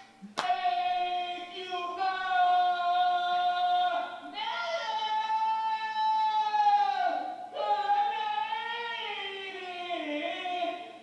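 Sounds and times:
sharp clap: 0.0 - 0.6.

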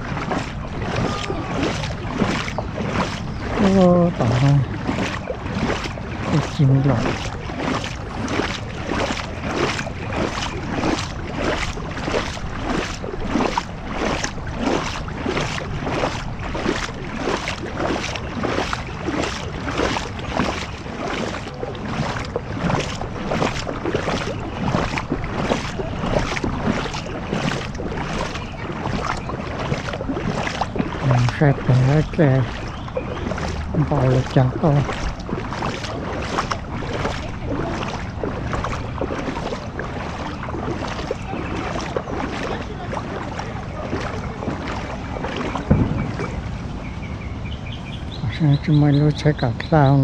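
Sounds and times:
heavy rain: 0.0 - 2.4.

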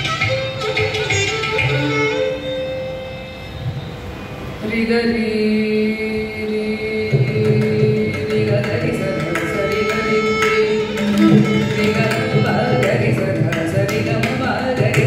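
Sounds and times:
violin melody: 0.0 - 4.7, 8.3 - 14.6.

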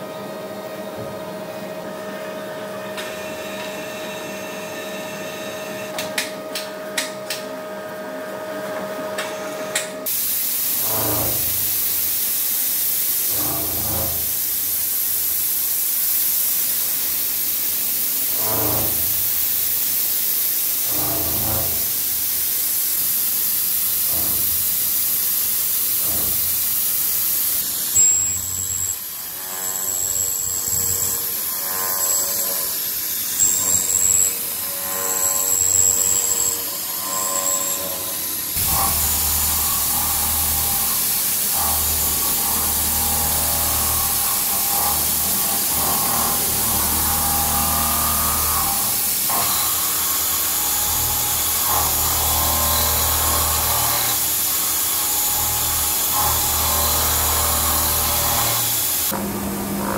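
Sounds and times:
hiss of coolant spray: 10.1 - 27.6
milling machine cutting steel: 18.1 - 59.9.

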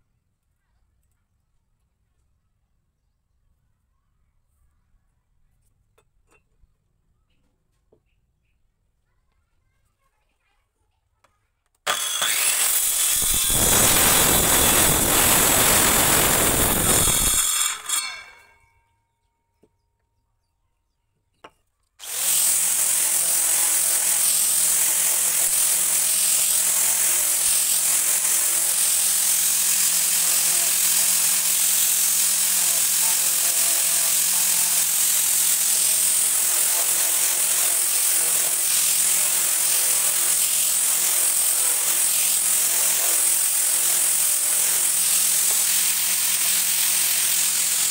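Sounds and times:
circular saw cutting wood: 11.8 - 18.6, 22.0 - 47.9
angle grinder sanding wood: 11.9 - 18.4, 22.0 - 47.9.

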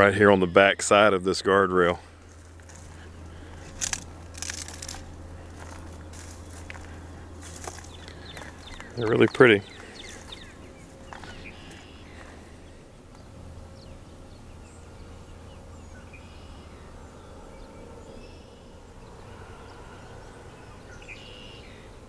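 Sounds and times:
low steady rumble: 0.0 - 22.0
bird chirps: 7.4 - 21.9.

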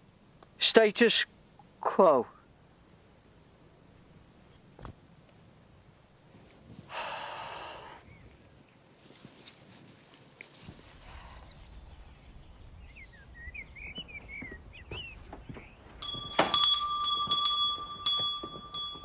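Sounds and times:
birds chirping: 11.0 - 19.0
doorbell ringing: 16.0 - 19.0.

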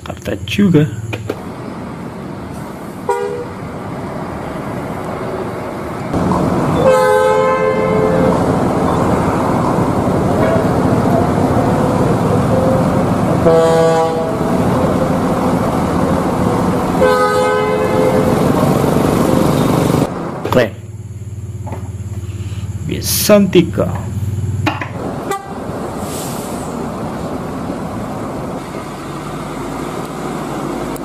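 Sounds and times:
heavy vehicle engine running: 0.0 - 31.0
bus air horn blasts: 3.0 - 3.6, 6.7 - 15.4, 16.9 - 19.9, 25.2 - 26.3.

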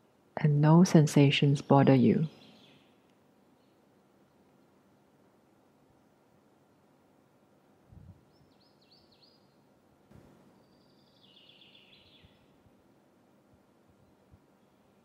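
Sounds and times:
room hiss: 0.0 - 15.0
faint bird chirps: 8.1 - 9.7, 10.4 - 12.6, 13.9 - 15.0
bird trill: 10.6 - 12.4.

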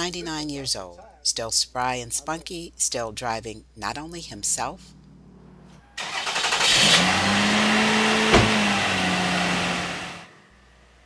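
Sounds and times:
car engine starting and running: 4.9 - 11.0.

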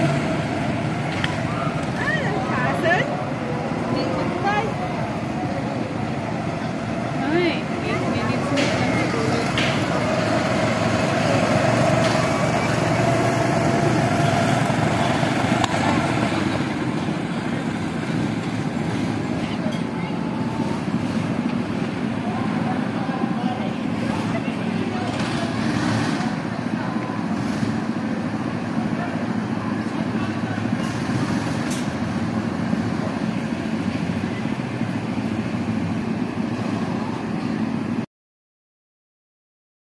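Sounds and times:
whining engine tone: 0.0 - 27.6
go-kart engines running: 0.0 - 38.0.

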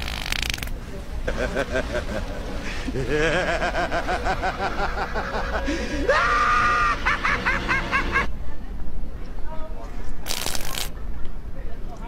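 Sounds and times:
person laughing high-pitched: 2.9 - 8.3.

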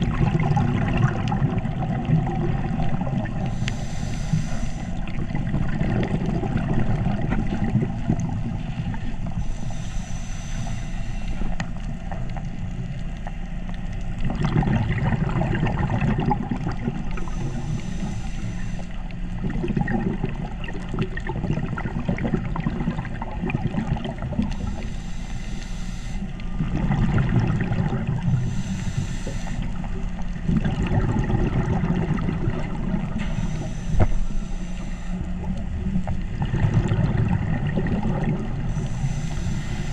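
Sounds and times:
bubbling exhaled air: 0.0 - 10.7, 14.1 - 39.9
diver inhaling through regulator: 2.6 - 7.1, 7.9 - 11.9, 15.6 - 19.5, 24.1 - 26.8, 27.5 - 30.9, 32.2 - 36.1, 37.7 - 39.9.

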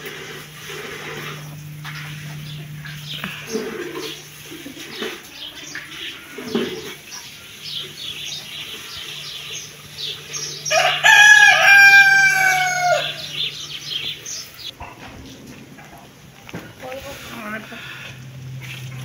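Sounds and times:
small birds chirping: 0.8 - 15.5
rooster crowing: 10.6 - 13.6.

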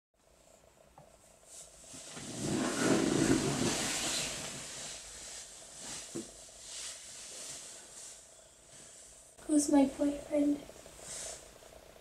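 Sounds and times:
rustling hissing noise: 1.2 - 9.8, 10.8 - 11.7.

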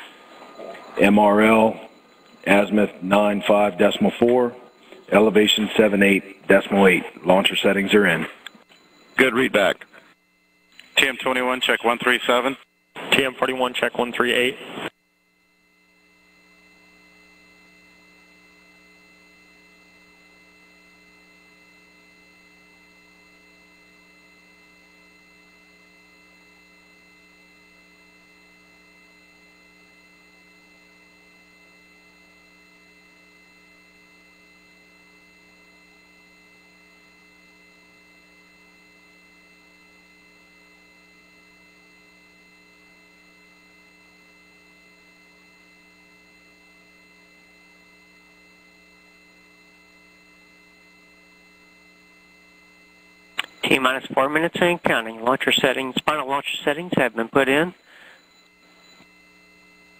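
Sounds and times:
thin high whining tones: 0.0 - 14.5, 53.4 - 59.9
faint electrical hum: 0.0 - 59.9.

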